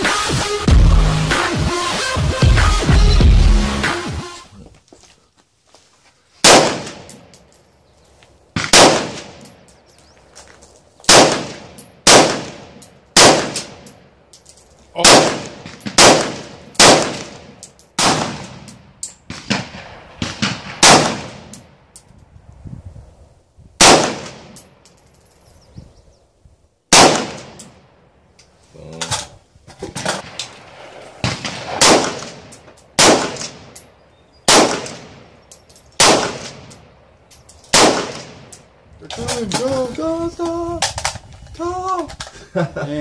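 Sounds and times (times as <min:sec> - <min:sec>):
rifle shots echoing: 0:06.4 - 0:07.3, 0:08.6 - 0:09.7, 0:11.1 - 0:14.0, 0:15.0 - 0:21.8, 0:23.8 - 0:24.8, 0:26.9 - 0:27.9, 0:30.2 - 0:33.8, 0:34.5 - 0:37.0, 0:37.6 - 0:38.6.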